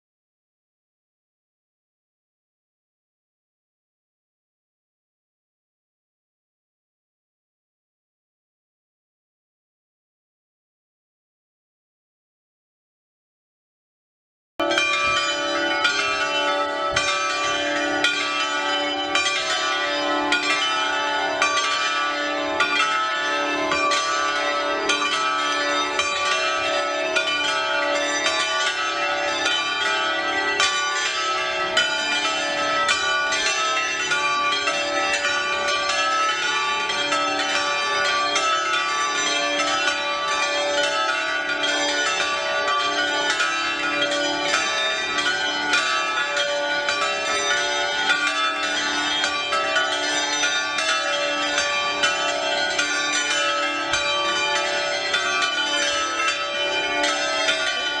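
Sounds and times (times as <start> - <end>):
church bells pealing: 14.6 - 58.0.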